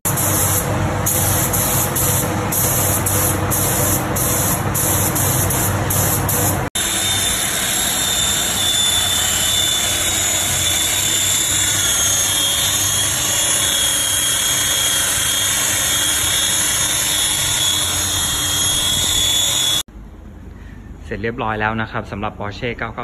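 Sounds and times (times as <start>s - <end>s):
spray gun hissing: 0.1s - 6.7s
rotary polisher whining: 6.8s - 19.9s.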